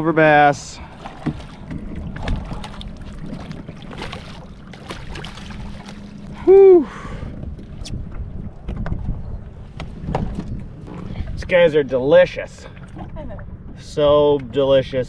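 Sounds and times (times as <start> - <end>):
steady low hum: 0.0 - 15.0
fish splashing in water: 0.9 - 6.3
person exhaling whew: 6.4 - 7.3.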